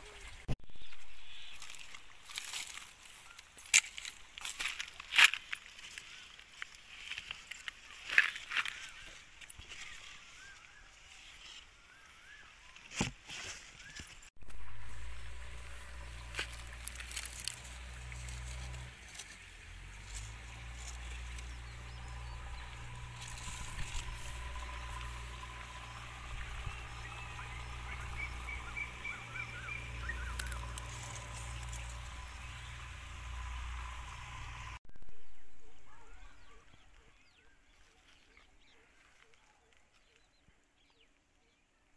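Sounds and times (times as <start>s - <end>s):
hand rustling tree leaves: 13.2s - 34.7s
steady low rumble: 14.4s - 18.9s, 19.5s - 35.9s
bird chirping: 20.4s - 41.9s.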